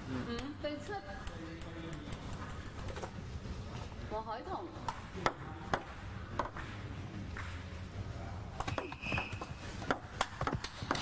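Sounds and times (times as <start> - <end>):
table tennis ball ticking: 0.4 - 3.0.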